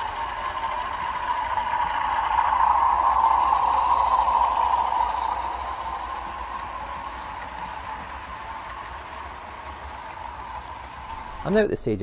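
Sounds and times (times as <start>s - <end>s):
model train whirring rumble: 0.0s - 11.6s.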